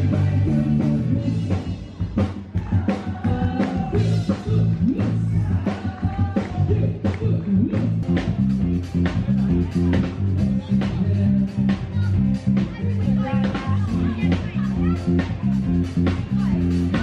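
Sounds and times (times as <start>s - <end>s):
person singing: 0.0s - 1.9s, 2.5s - 8.2s
live band playing: 0.0s - 17.0s.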